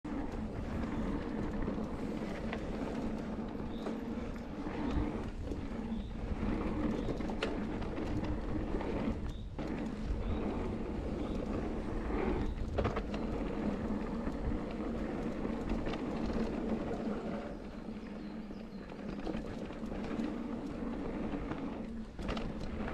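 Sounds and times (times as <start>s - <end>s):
bike tyre rumble on dirt: 0.0s - 22.9s.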